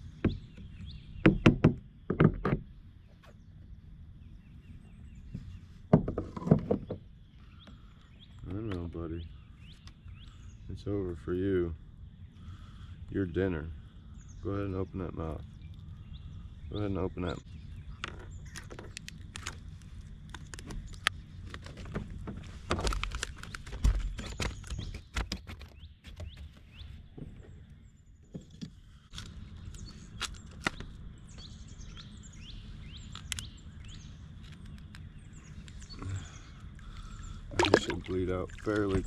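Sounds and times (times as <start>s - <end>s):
bird chirping: 0.0s - 21.4s, 22.4s - 39.0s
clicks and knocks of gear handled: 20.3s - 26.4s.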